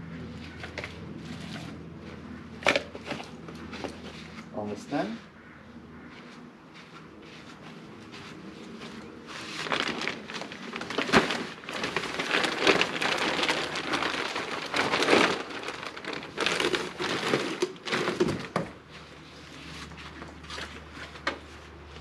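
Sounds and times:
plastic wrapping crinkling: 0:09.4 - 0:18.7.

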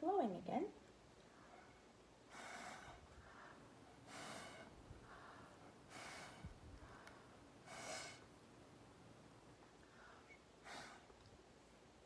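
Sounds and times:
faint breaths drawn in: 0:01.0 - 0:08.9, 0:09.6 - 0:11.3
puffs of air through a straw: 0:01.2 - 0:08.4, 0:09.8 - 0:11.2.

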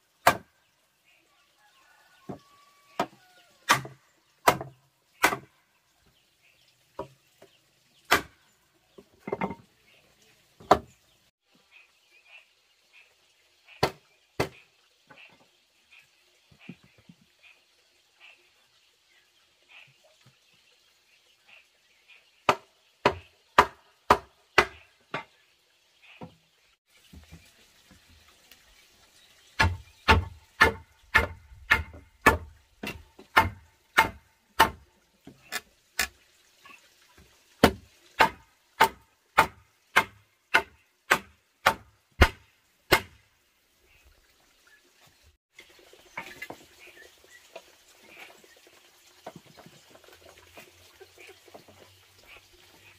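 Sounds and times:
hammer striking wood: 0:29.6 - 0:34.8, 0:37.6 - 0:43.2.

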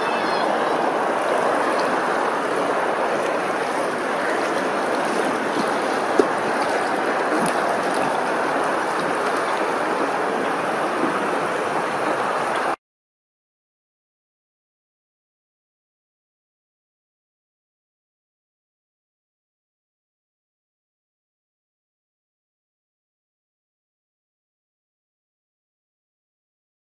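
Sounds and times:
flowing water rushing: 0:00.0 - 0:12.8.

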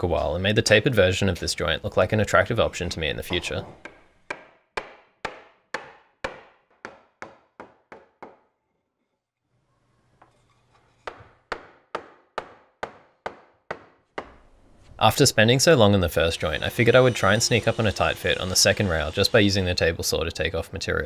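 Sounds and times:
hammer striking wood: 0:03.8 - 0:08.5, 0:11.0 - 0:14.5.

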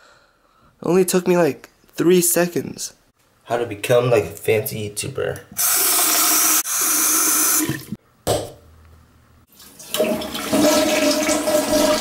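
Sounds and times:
sink faucet running: 0:05.6 - 0:08.0, 0:09.5 - 0:12.0
toilet flushing: 0:05.6 - 0:08.0, 0:09.5 - 0:12.0.

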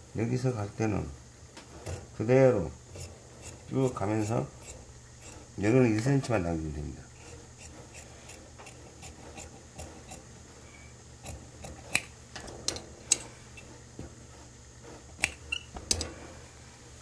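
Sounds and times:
shears snipping fabric: 0:01.6 - 0:06.4, 0:07.1 - 0:10.5, 0:11.2 - 0:12.2, 0:13.0 - 0:16.3.

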